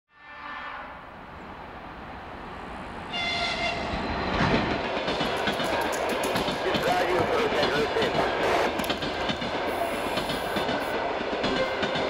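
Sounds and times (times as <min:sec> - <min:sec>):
train horn: 0:00.1 - 0:01.1, 0:03.1 - 0:04.0, 0:11.5 - 0:12.0
train rumbling and rattling: 0:01.1 - 0:12.0.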